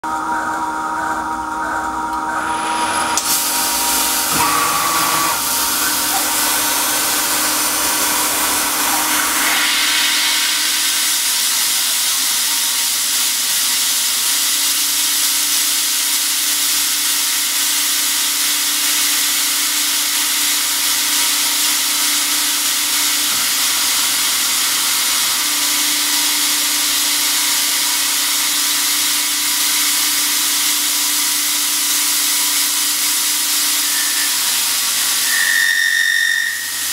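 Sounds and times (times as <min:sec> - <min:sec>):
mill cutting metal: 0:00.0 - 0:36.9
air nozzle hissing: 0:02.5 - 0:13.1, 0:31.9 - 0:36.9.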